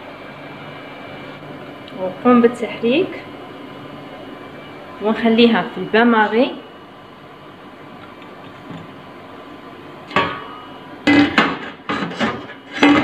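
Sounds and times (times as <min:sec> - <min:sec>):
faint steady hum: 0:00.0 - 0:11.9.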